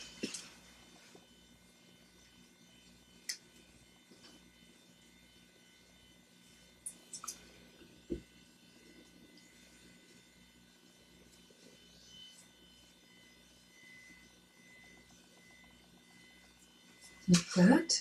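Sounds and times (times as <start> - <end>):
low electrical hum: 0.0 - 18.0.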